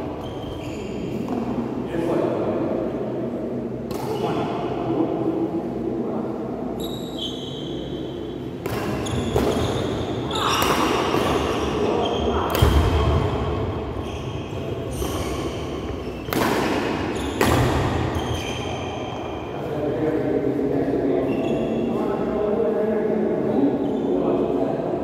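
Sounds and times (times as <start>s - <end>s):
shoes squeaking on court floor: 0.1s - 1.5s, 6.8s - 8.0s, 8.7s - 13.2s, 13.9s - 16.4s, 17.0s - 19.4s, 21.2s - 22.0s
racket striking shuttlecock: 16.2s - 18.1s.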